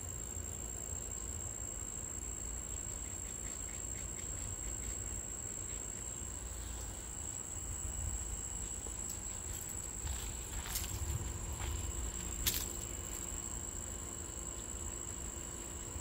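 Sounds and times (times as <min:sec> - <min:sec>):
crickets trilling: 0:00.0 - 0:16.0
low background rumble: 0:04.2 - 0:16.0.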